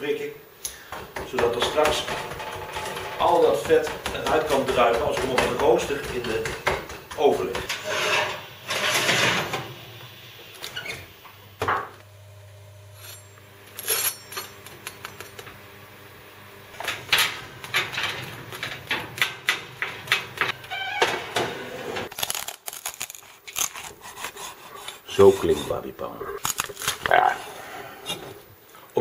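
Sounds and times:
oven door shutting: 0:01.4 - 0:06.2, 0:07.6 - 0:09.8, 0:16.7 - 0:22.1.

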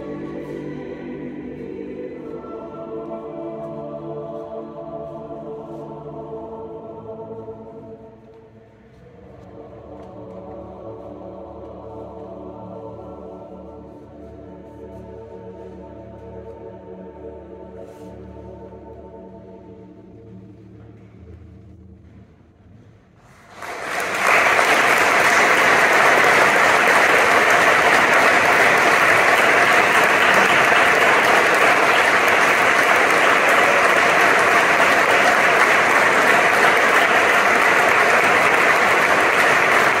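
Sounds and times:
choir chord: 0:00.0 - 0:20.9, 0:23.6 - 0:40.0
audience applause: 0:23.5 - 0:40.0.

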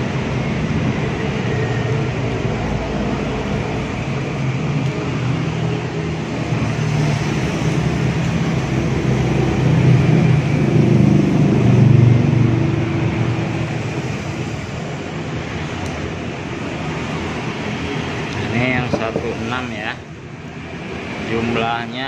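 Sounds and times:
mechanical hum and rumble: 0:00.0 - 0:22.0.

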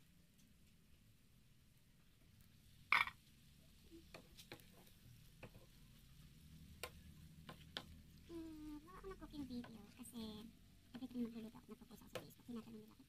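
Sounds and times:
spatula tapping and scraping pan: 0:04.0 - 0:05.8, 0:06.6 - 0:08.2, 0:09.4 - 0:10.0, 0:11.9 - 0:12.5.

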